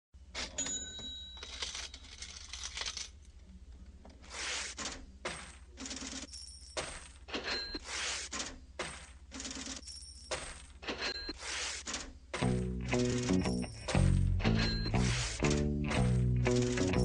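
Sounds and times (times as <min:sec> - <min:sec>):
coins jingling and clinking: 0:00.4 - 0:03.1, 0:05.4 - 0:07.8, 0:08.9 - 0:11.3, 0:16.5 - 0:17.0.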